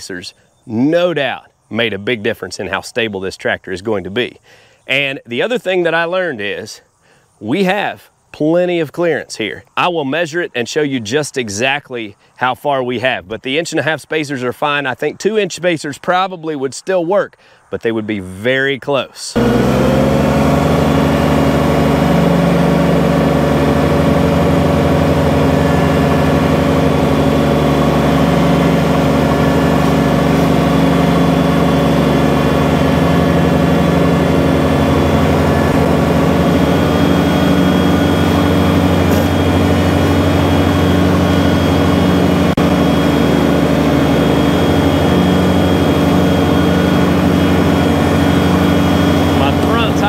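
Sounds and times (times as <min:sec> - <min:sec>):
tractor diesel engine running: 0:19.4 - 0:50.0.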